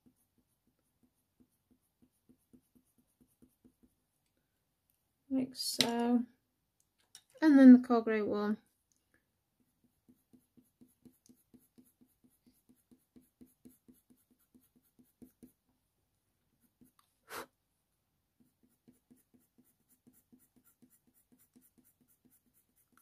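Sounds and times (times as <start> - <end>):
pencil strokes on paper: 0.0 - 4.2, 9.6 - 15.6, 16.5 - 17.5, 18.4 - 23.0.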